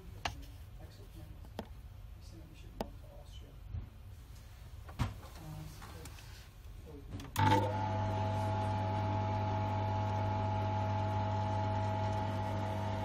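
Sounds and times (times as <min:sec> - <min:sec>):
electric pump humming: 0:07.3 - 0:13.0.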